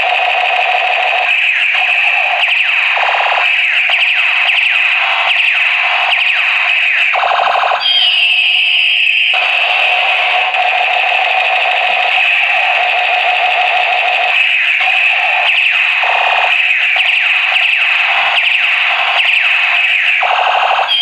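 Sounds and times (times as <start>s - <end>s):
toy gun buzzing tone: 7.2s - 16.6s.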